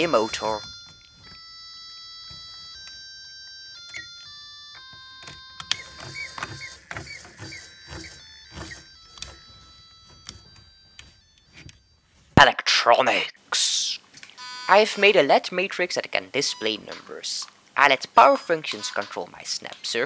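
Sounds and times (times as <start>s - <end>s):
beeping tune: 0.0s - 12.1s
plastic parts clicking and knocking: 4.7s - 9.4s
small electric motors whirring: 5.6s - 9.4s.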